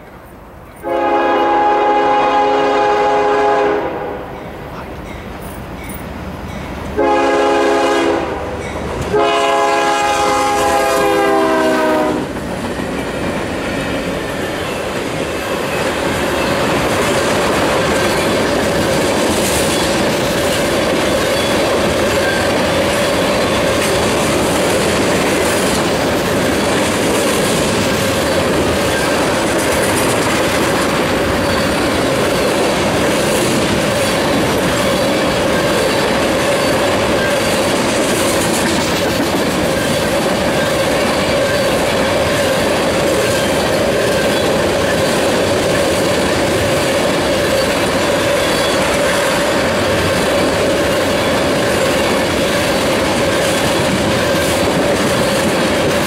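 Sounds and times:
locomotive air horn: 0.8s - 4.4s, 7.0s - 12.4s
wheel-on-rail noise: 12.4s - 56.0s.

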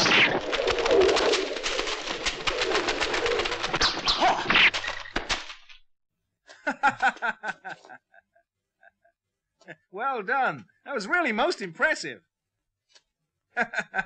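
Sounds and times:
dry leaves crackling and rustling: 0.0s - 5.0s
rapid pitched calls: 0.0s - 5.4s.

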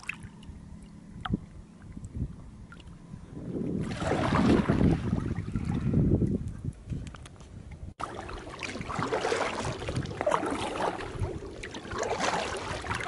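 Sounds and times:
wind rumble on microphone: 0.3s - 8.0s, 8.8s - 13.0s
paddle splashing water: 3.7s - 5.9s, 8.0s - 13.0s.

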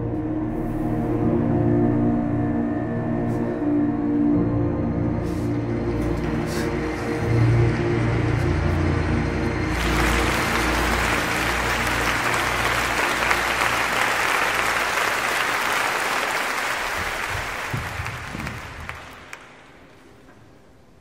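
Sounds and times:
low steady drone: 0.0s - 14.9s
audience applauding: 6.1s - 20.1s.

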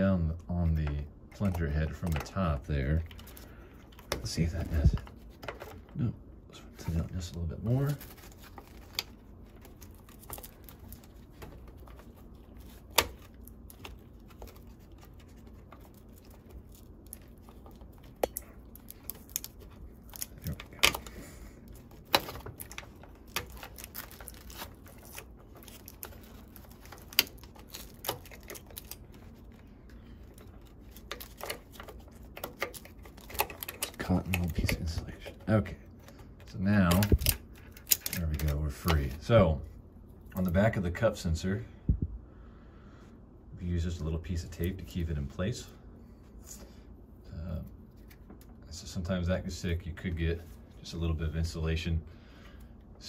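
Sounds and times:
hands clicking plastic parts: 7.9s - 39.2s.

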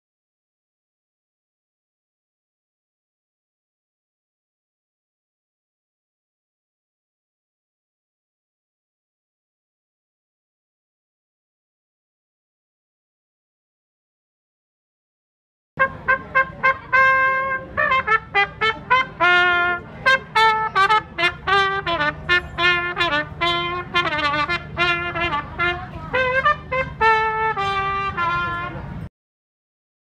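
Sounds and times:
solo trumpet melody: 15.8s - 29.1s.

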